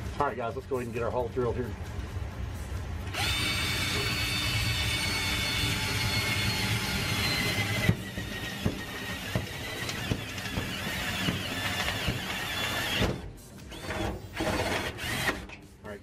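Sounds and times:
drill bit squealing through metal: 3.2s - 13.1s.

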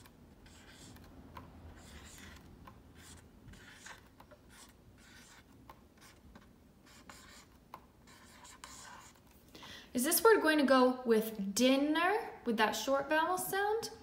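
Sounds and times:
marker scratching on whiteboard: 0.0s - 9.4s.

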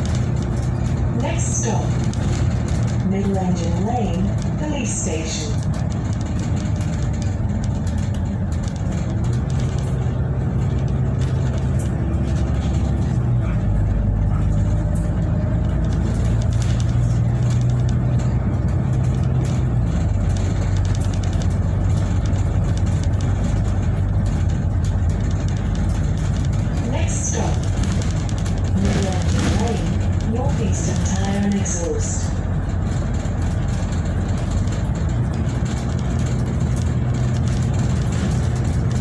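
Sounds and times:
bus engine hum: 0.0s - 39.0s
road noise: 0.0s - 39.0s.

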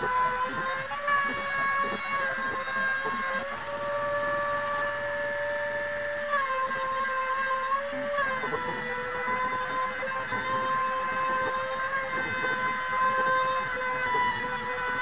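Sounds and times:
router spindle cutting wood: 0.0s - 15.0s.

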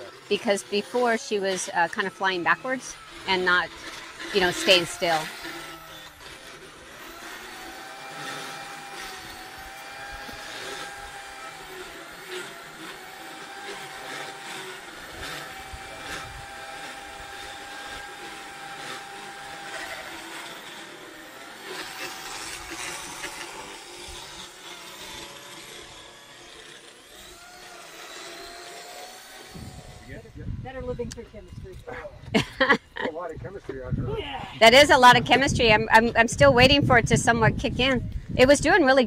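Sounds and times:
dental float motor whining: 0.0s - 33.0s, 34.6s - 39.0s.

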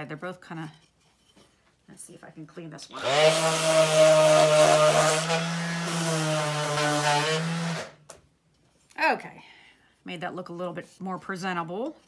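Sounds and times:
orbital sander on wood: 2.9s - 8.0s.

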